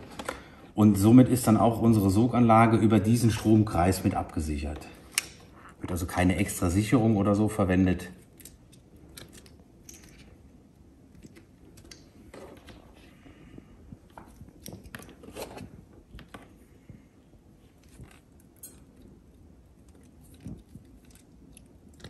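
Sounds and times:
cable clicking and crinkling: 8.2 - 17.0, 17.6 - 22.0.

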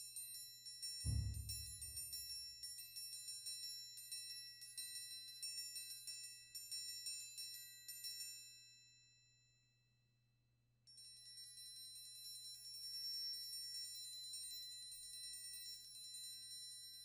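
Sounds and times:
triangle ringing: 1.1 - 2.4.

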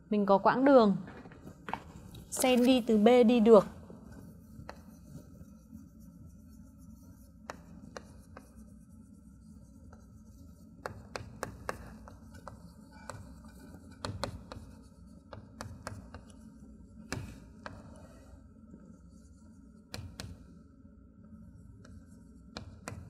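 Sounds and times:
chalk tapping on chalkboard: 4.1 - 18.2, 19.1 - 20.5, 21.8 - 23.0.

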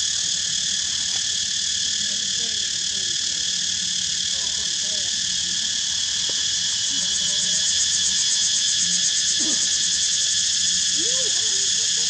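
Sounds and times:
insects chorus: 0.0 - 12.0.

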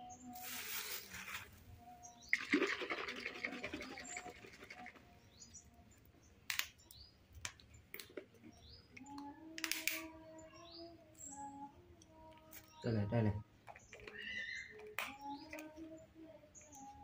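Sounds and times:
sharp clicks: 8.9 - 10.1.

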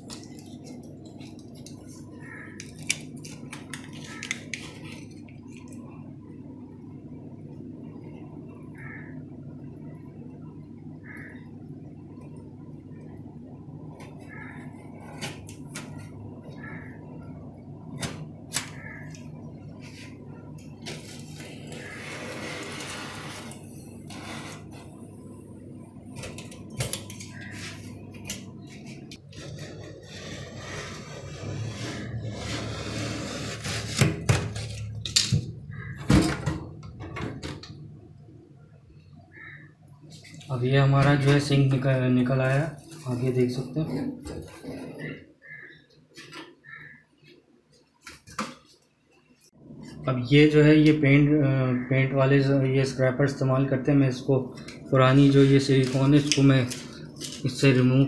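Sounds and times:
steady low hum: 0.0 - 46.0.

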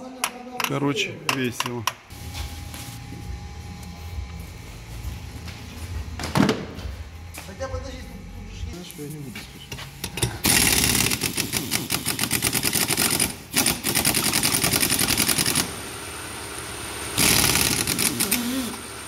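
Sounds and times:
pneumatic impact wrench rattling: 10.0 - 15.8, 17.2 - 19.0.

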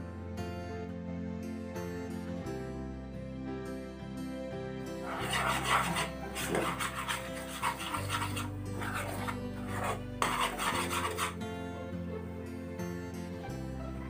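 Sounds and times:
soft background music: 0.0 - 14.0
spoon scraping pan: 5.0 - 11.4.

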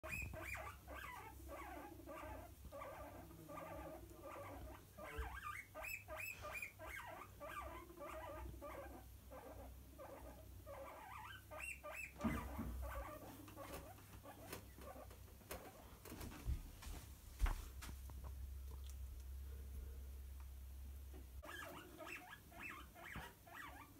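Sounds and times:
guinea pigs chirping and squealing: 0.0 - 15.7, 21.4 - 23.9.

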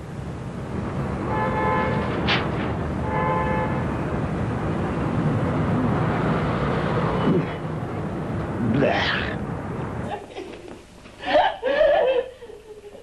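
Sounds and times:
multi-tone horn blasts: 1.2 - 2.2, 3.0 - 4.0.

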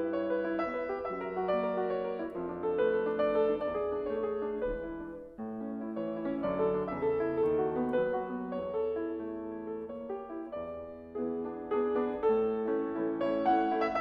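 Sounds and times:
slow piano music: 0.0 - 14.0.

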